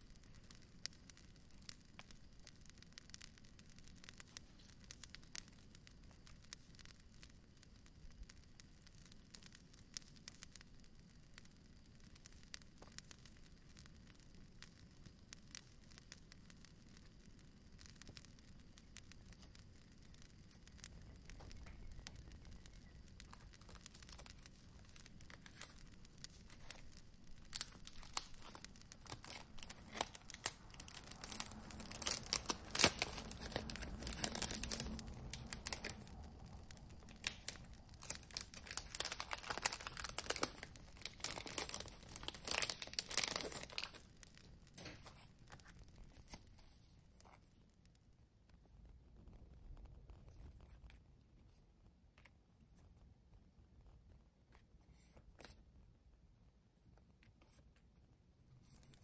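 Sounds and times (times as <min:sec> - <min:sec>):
packaging crinkling and tearing: 0:20.5 - 0:47.5.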